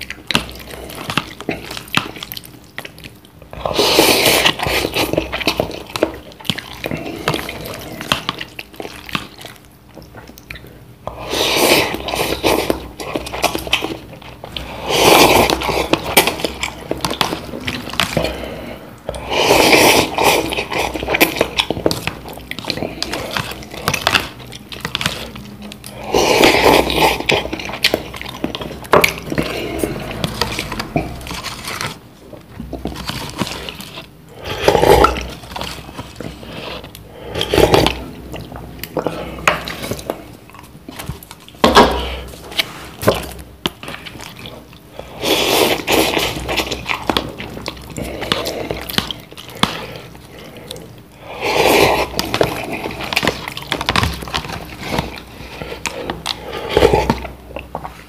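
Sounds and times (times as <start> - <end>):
chewing: 0.0 - 58.0
loud slurping of noodles: 11.2 - 12.7, 14.6 - 16.2, 18.2 - 21.3, 51.2 - 53.0.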